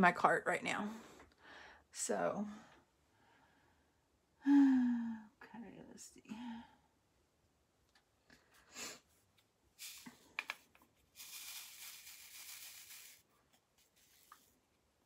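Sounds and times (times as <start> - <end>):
rustling of craft supplies: 8.5 - 14.9.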